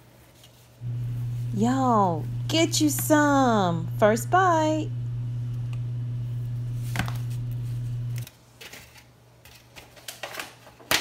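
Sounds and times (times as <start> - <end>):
steady low hum: 0.8 - 8.3.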